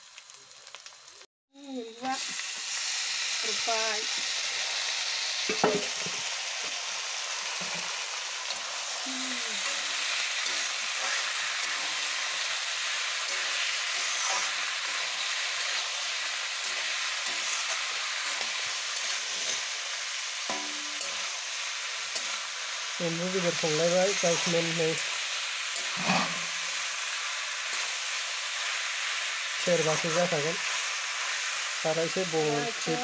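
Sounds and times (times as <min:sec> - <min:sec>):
meat sizzling in hot oil: 0:00.0 - 0:33.0
spatula scraping a pan: 0:09.6 - 0:15.9, 0:25.8 - 0:26.7.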